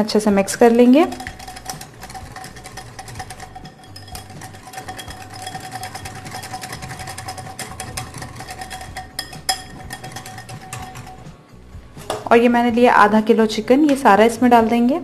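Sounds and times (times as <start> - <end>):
metal spoon stirring in glass bowl: 0.4 - 11.6.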